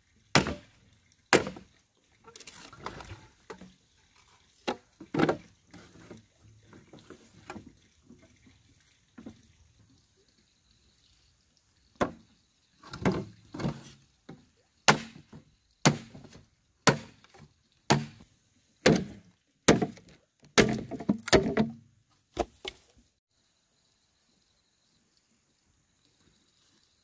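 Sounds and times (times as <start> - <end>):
machete chopping bamboo: 0.3 - 0.7, 1.3 - 1.7, 14.9 - 17.3, 17.9 - 18.2, 18.8 - 21.8.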